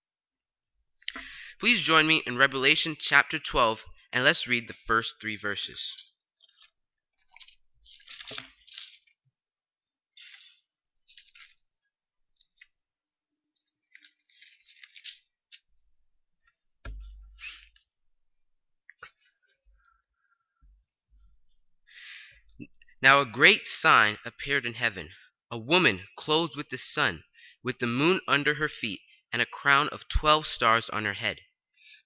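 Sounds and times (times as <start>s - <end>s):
book pages rustling: 6.0s - 9.3s, 10.2s - 12.8s, 13.5s - 15.7s
low thump: 16.8s - 17.4s.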